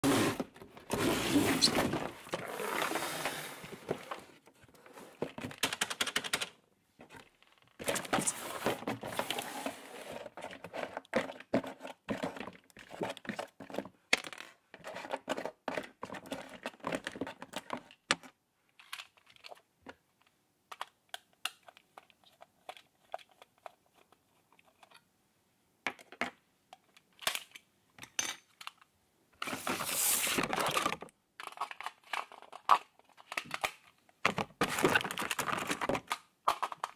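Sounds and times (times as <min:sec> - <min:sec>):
packaging rustling and crinkling: 0:00.0 - 0:05.5, 0:29.4 - 0:36.9
plastic parts clicking: 0:05.3 - 0:06.6, 0:16.5 - 0:25.0, 0:25.9 - 0:28.9, 0:30.4 - 0:36.9.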